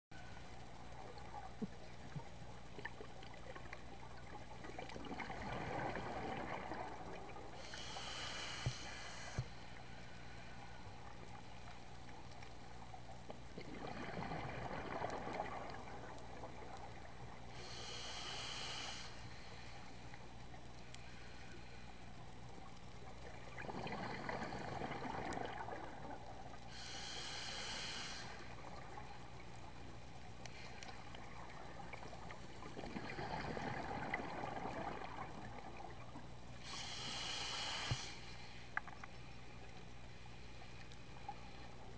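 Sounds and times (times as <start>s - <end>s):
bubbling exhale underwater: 4.7s - 7.5s, 13.5s - 17.1s, 23.5s - 26.9s, 31.3s - 36.2s
regulator inhale hiss: 7.5s - 11.8s, 17.5s - 20.2s, 20.9s - 22.2s, 26.6s - 29.1s, 30.4s - 31.4s, 36.6s - 38.8s.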